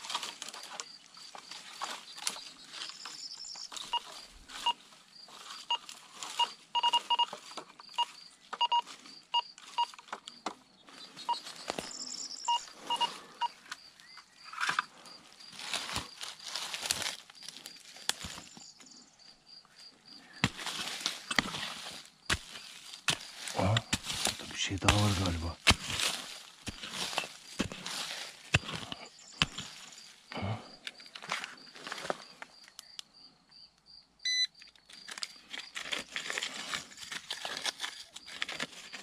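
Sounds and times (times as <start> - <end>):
metal detector beeping: 3.7 - 4.8, 5.7 - 10.0, 11.3 - 13.6, 34.2 - 34.6
hand pick striking stony soil: 20.4 - 29.8.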